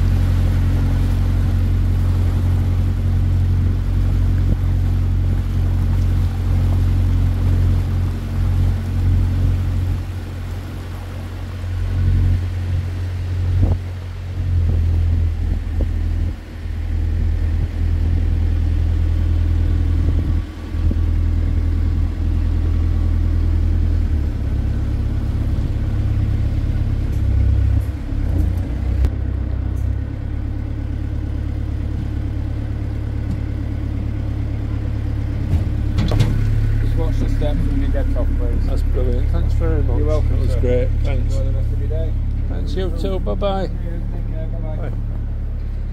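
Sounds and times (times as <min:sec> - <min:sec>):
boat engine rumbling: 0:00.0 - 0:45.9.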